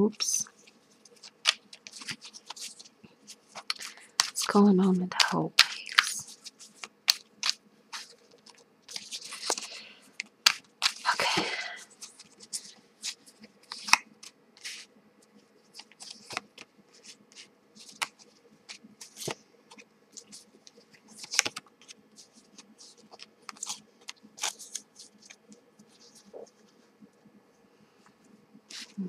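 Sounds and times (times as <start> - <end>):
cards shuffling and snapping: 1.1 - 2.9, 3.5 - 14.9, 15.8 - 25.4.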